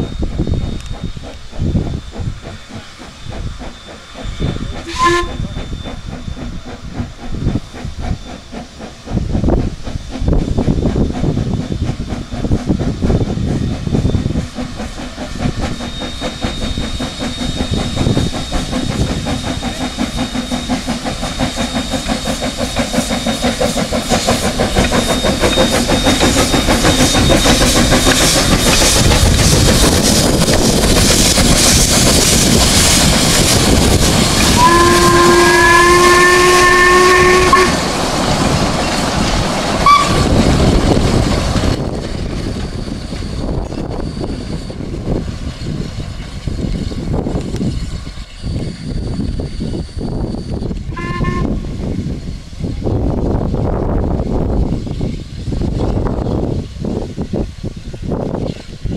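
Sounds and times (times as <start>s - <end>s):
steam locomotive passing: 0.0s - 58.9s
train wheels on rails: 0.0s - 58.9s
steam whistle: 4.4s - 6.5s, 32.8s - 37.9s, 39.8s - 40.4s, 50.9s - 51.8s.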